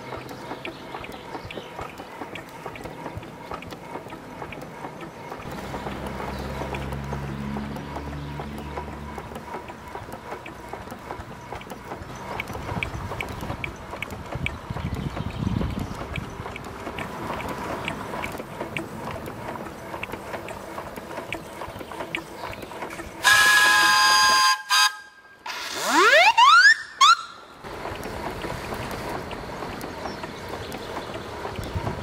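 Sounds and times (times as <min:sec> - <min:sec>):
steam whistle blowing: 0:23.2 - 0:26.9.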